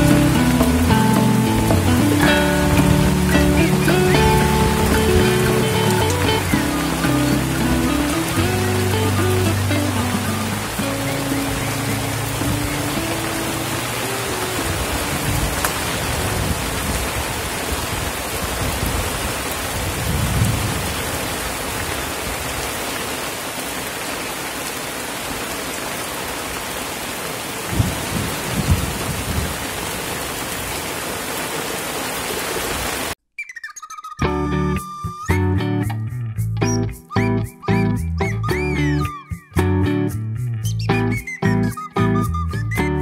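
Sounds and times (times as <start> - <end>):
thunder rumbling: 0.0 - 22.5, 27.7 - 30.7
rain falling on water: 0.0 - 33.2.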